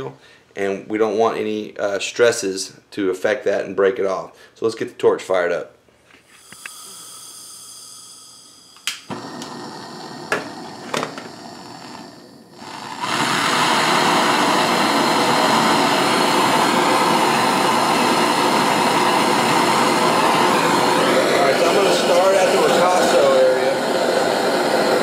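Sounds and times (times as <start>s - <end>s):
soft hiss of gas: 6.2s - 25.0s
lighter clicks: 6.4s - 6.8s, 8.8s - 12.8s
torch burning with loud hiss: 6.4s - 25.0s.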